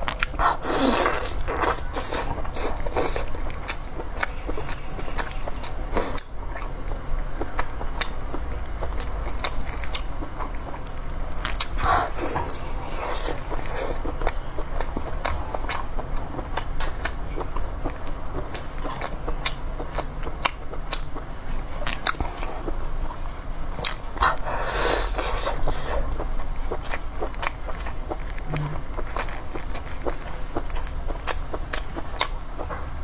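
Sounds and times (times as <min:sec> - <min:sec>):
close chewing and biting: 0:00.0 - 0:33.0
wet mouth clicks and smacks: 0:07.4 - 0:21.2.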